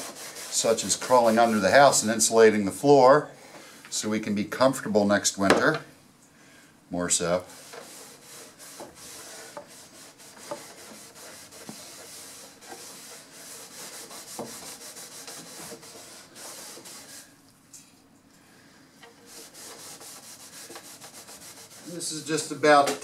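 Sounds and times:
cloth rag wiping wood: 0.0s - 2.4s, 7.4s - 17.3s, 19.0s - 22.8s.

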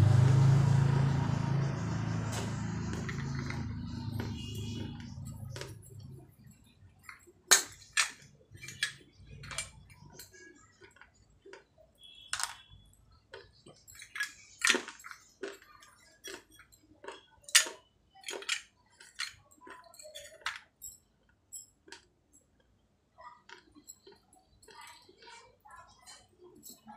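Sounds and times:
clay pieces crunching when chewed: 2.9s - 20.4s, 21.2s - 22.7s, 23.4s - 26.9s.

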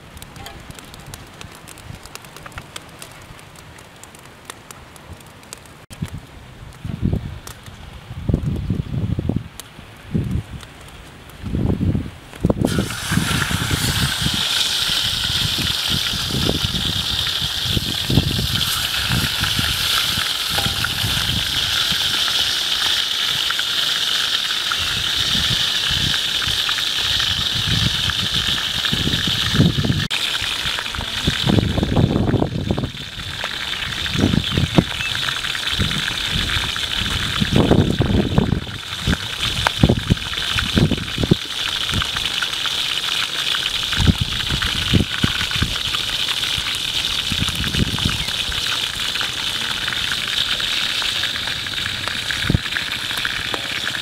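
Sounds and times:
fish sizzling in hot oil: 12.6s - 54.0s.

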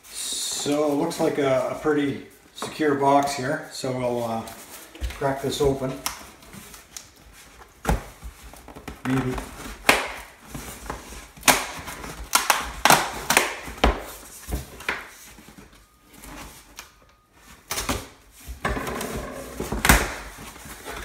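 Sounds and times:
scraping and rustling cardboard: 14.1s - 21.0s.

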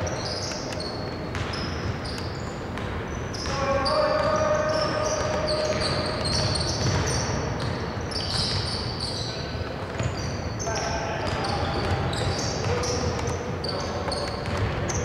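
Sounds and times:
sneakers squeaking: 0.0s - 15.0s
basketball bouncing: 1.2s - 4.4s, 5.1s - 8.9s, 14.0s - 15.0s.

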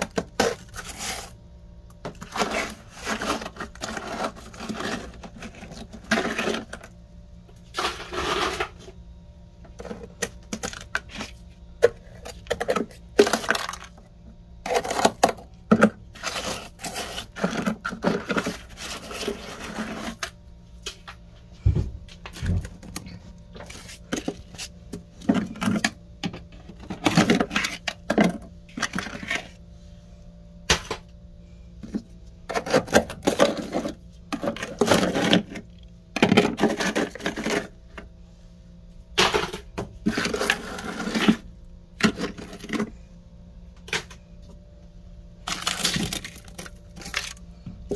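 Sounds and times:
scraping and crunching frost: 0.0s - 7.0s, 7.6s - 9.0s, 14.6s - 20.4s, 36.3s - 37.8s, 39.2s - 42.9s, 45.4s - 47.4s
faint steady hum: 0.0s - 47.9s.

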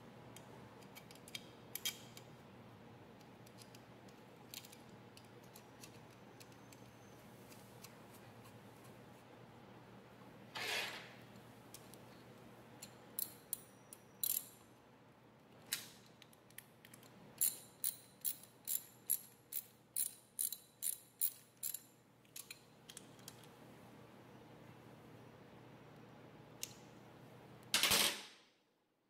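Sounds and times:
ratchet wrench clicking: 14.2s - 14.5s, 17.4s - 21.8s.

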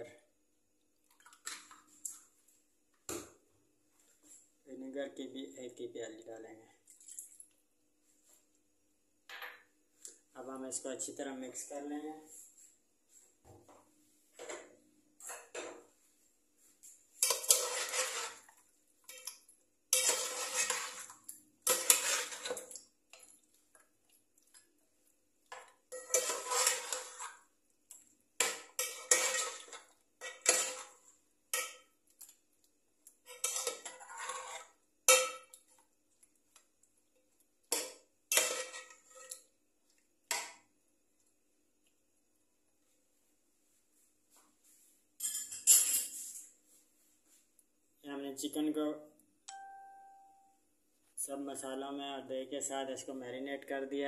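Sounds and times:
metal pot clanking: 17.2s - 23.2s, 25.5s - 27.4s, 28.4s - 32.0s, 33.2s - 35.7s, 37.7s - 39.4s.

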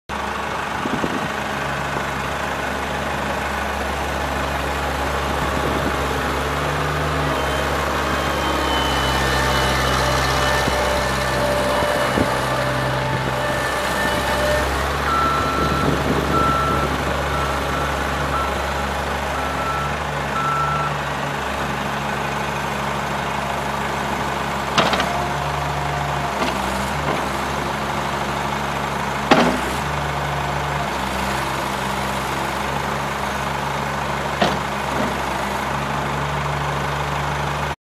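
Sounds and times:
diesel engine running: 0.1s - 37.8s
backup alarm beeping: 7.2s - 21.0s.

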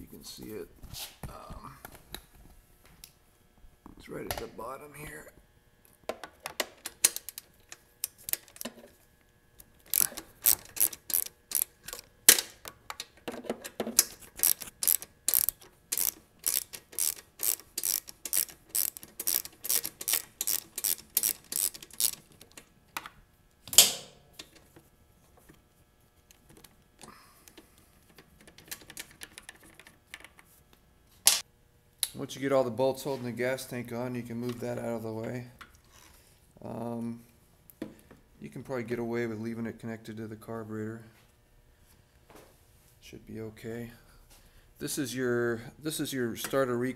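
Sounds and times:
socket ratchet clicking: 9.8s - 12.5s, 14.0s - 22.7s.

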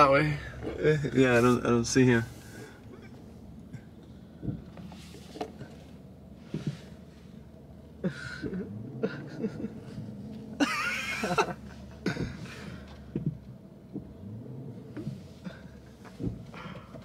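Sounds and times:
people laughing quietly: 8.0s - 12.9s.

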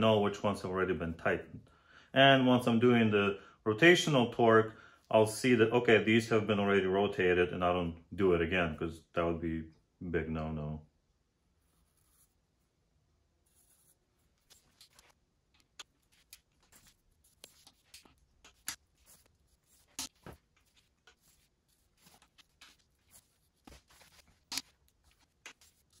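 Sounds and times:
marker scratching on metal bolts: 13.4s - 26.0s.

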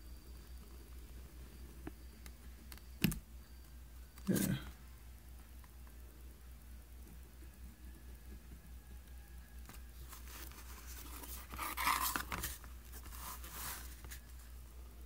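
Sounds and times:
leather scraping on cutting mat: 10.4s - 12.5s.

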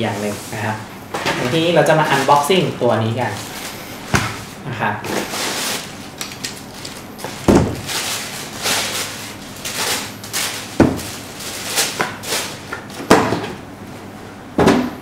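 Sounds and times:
paper wrapping rustling: 1.5s - 3.9s, 5.2s - 13.0s.

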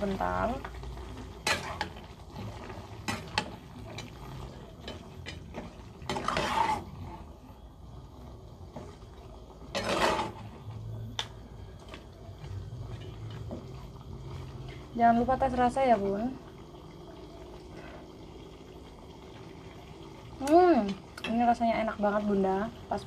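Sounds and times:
metal spatula scraping a wok: 1.3s - 7.4s, 9.6s - 10.7s, 12.8s - 15.0s.

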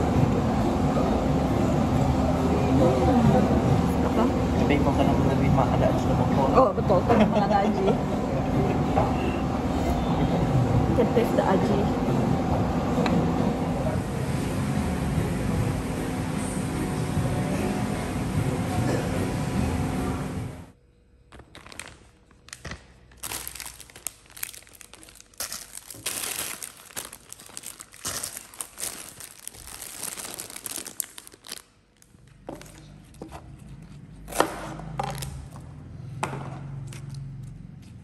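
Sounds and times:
plastic bags crinkling: 21.4s - 32.9s, 35.0s - 35.6s.

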